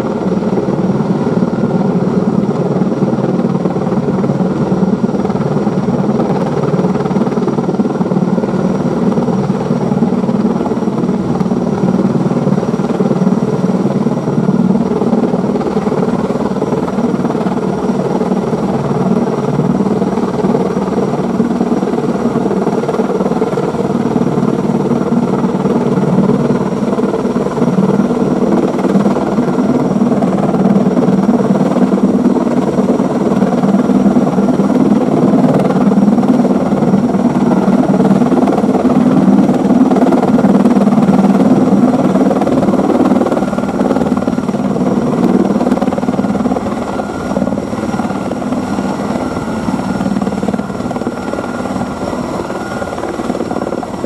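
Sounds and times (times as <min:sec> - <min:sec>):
helicopter turbines and rotors drone: 0:00.0 - 0:54.0.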